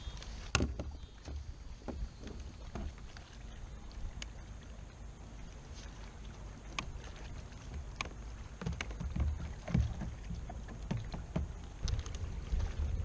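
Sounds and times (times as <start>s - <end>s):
steady low rumble: 9.3s - 13.0s.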